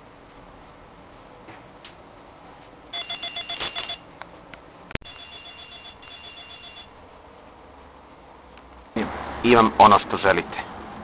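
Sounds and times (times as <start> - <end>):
telephone ringing trilling warble: 5.0 - 7.0.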